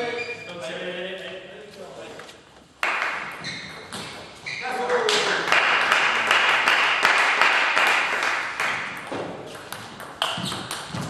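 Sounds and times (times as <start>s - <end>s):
table tennis balls clicking: 8.6s - 11.0s.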